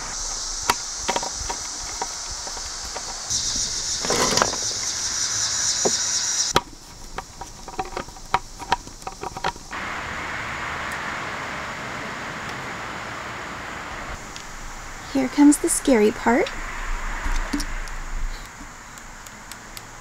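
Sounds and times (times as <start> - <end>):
outdoor background hiss: 0.0 - 20.0
small sharp ticks: 17.2 - 20.0.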